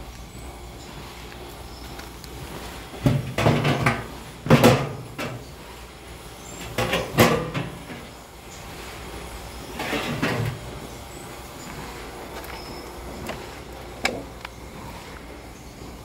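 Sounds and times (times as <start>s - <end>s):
steel door scraping on steel: 9.7s - 10.7s.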